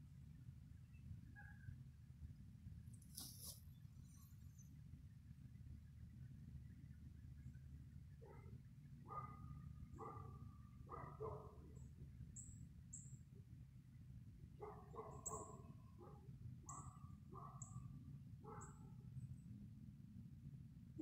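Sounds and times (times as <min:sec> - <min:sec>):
low background rumble: 0:00.0 - 0:21.0
distant dog barking: 0:09.1 - 0:11.7, 0:14.6 - 0:17.8.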